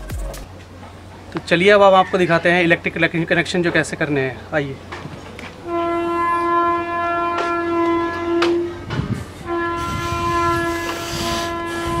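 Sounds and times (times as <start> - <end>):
horn blasts: 5.6 - 12.0.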